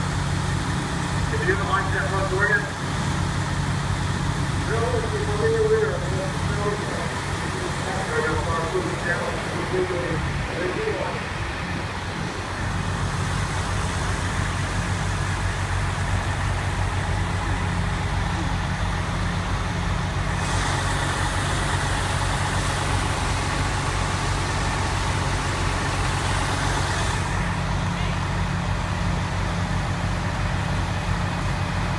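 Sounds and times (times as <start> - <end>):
diesel engine idling: 0.0 - 31.9
hiss: 20.4 - 23.2.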